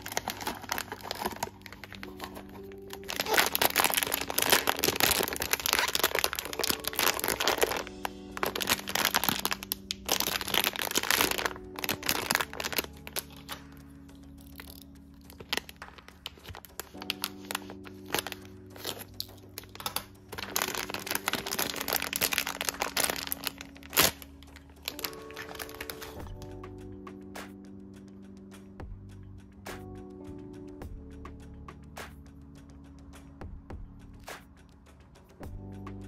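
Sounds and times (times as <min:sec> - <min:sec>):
plastic bag crinkling and tearing: 0:00.0 - 0:13.8, 0:14.4 - 0:26.4
soft background music: 0:00.0 - 0:36.0.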